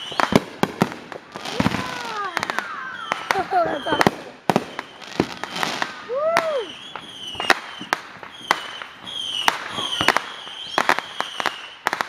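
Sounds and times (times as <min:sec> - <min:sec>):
fireworks bangs: 0:00.0 - 0:12.0
fireworks whistling: 0:00.0 - 0:12.0.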